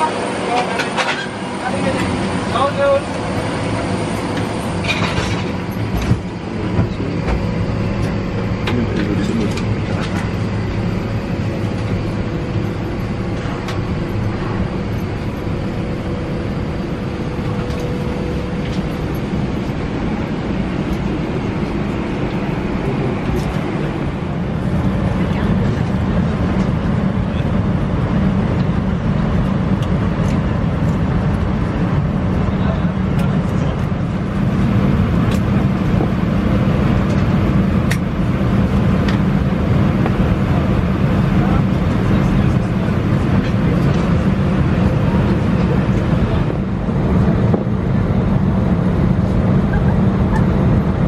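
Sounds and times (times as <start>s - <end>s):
cabin air rushing and humming: 0.0s - 51.0s.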